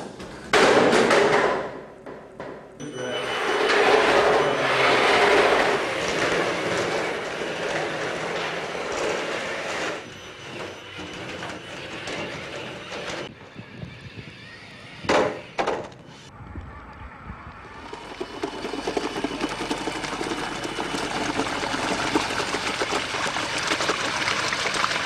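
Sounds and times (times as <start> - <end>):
tracked robot rattling on concrete: 3.7 - 13.3, 18.0 - 23.0.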